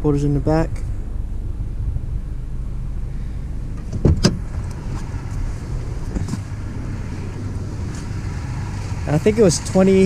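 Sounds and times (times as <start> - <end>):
engine idling inside cab: 0.0 - 10.0
rising swish: 4.4 - 9.0.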